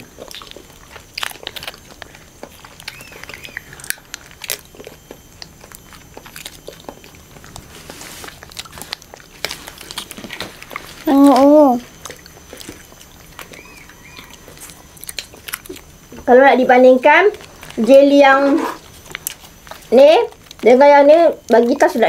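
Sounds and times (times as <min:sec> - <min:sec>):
plastic packets crinkling: 0:00.0 - 0:16.2.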